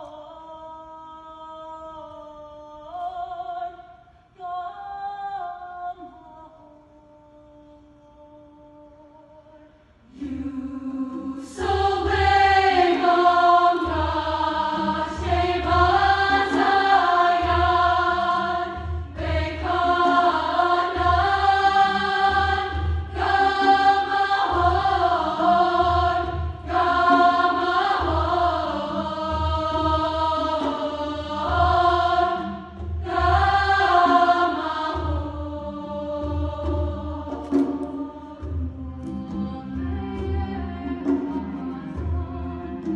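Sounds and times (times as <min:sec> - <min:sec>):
women's choir singing: 0:10.0 - 0:42.9.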